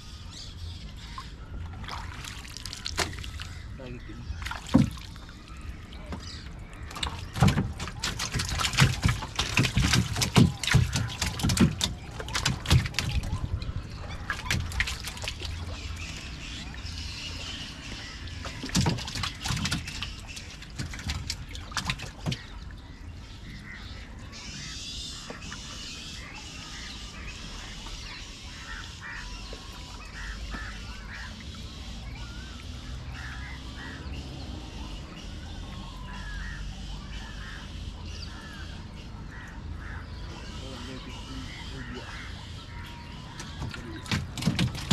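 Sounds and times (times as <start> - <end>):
waterbirds calling: 0.0 - 44.9
knocks and clatters in canoe: 4.3 - 5.3, 5.9 - 16.6, 17.5 - 22.7, 42.9 - 44.9.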